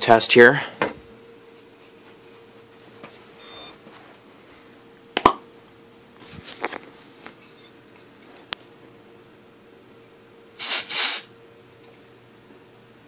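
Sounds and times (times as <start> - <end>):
faint steady hum: 0.0 - 13.0
handling rustle: 6.2 - 7.5.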